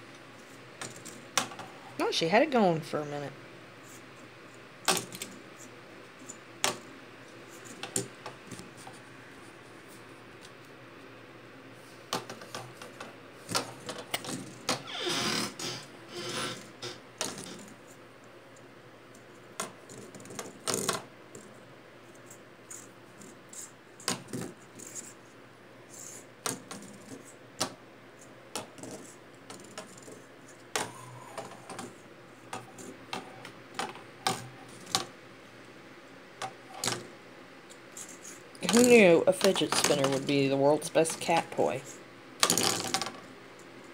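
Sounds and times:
spinner rattling: 37.7 - 43.2.

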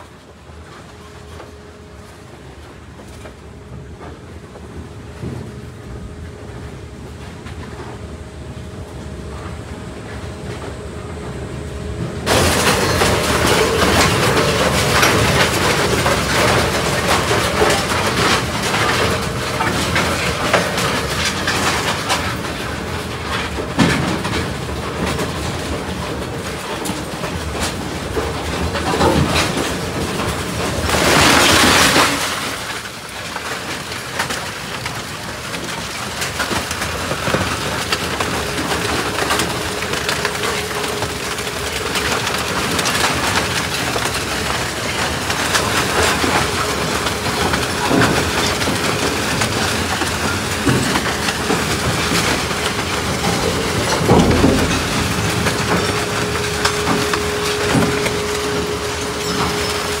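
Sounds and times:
machine hum: 0.0 - 60.0
scrap metal shredder clattering: 12.2 - 60.0.

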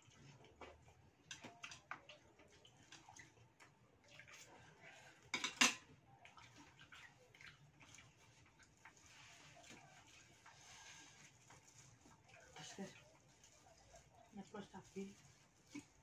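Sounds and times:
chopsticks and bowls clinking: 5.3 - 5.9
tableware clatter: 5.3 - 5.9.

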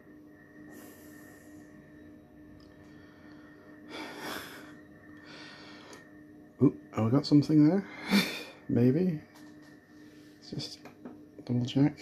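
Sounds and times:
faint electrical hum: 0.0 - 12.0
person breathing: 0.7 - 1.8, 2.8 - 6.1.

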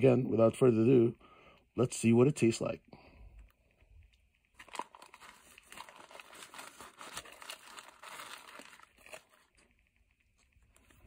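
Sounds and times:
paper wrapper crinkling: 4.5 - 11.0.

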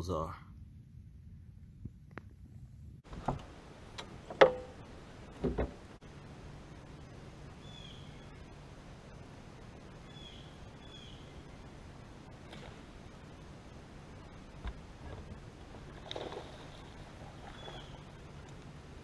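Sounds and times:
faint background hiss: 3.0 - 19.0
sharp knocks: 4.3 - 4.7.

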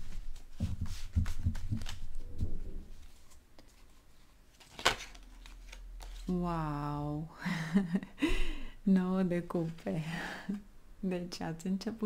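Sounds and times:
cards being shuffled: 3.0 - 6.4.

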